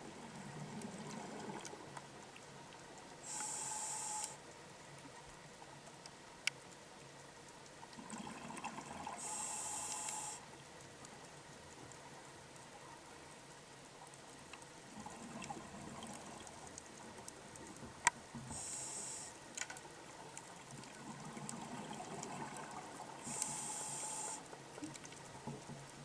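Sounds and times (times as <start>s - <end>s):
air hissing through regulator: 3.2s - 4.4s, 9.2s - 10.4s, 18.5s - 19.4s, 23.2s - 24.4s
exhaled bubbles burbling: 8.0s - 9.2s, 20.8s - 23.3s.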